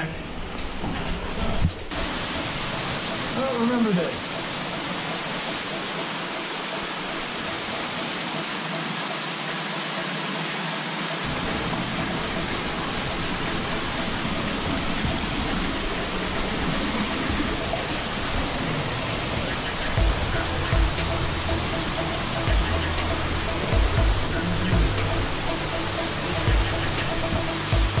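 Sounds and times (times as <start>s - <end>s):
underground waterfall rushing: 0.0s - 28.0s
deep rumble: 19.3s - 28.0s.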